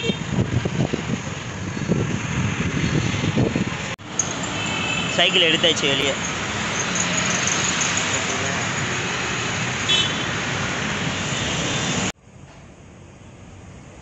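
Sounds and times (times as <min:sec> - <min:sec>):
city street traffic: 0:00.0 - 0:14.0.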